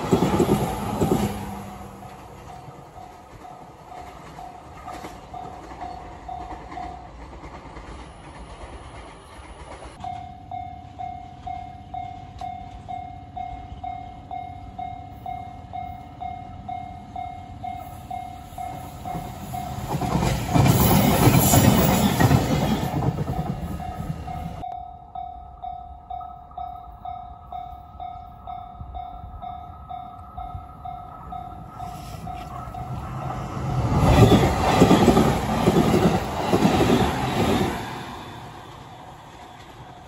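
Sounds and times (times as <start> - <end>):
train rushing rumble: 0.0 - 10.1, 17.6 - 24.7, 28.2 - 40.0
level crossing warning bell dinging: 10.0 - 20.0, 23.4 - 33.2.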